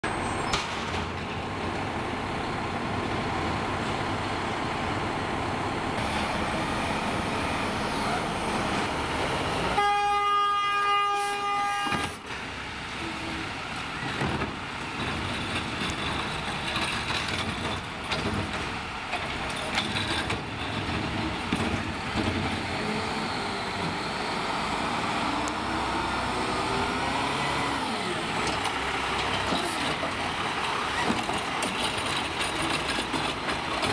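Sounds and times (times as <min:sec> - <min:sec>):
truck horn blast: 0:09.6 - 0:12.2.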